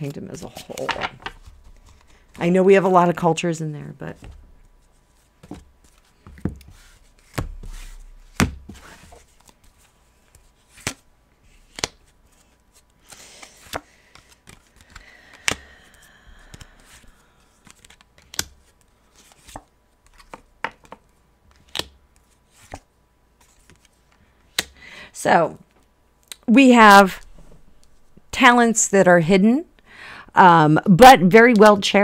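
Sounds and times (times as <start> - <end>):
cards sliding rustle: 0.4 - 2.4, 4.2 - 24.7.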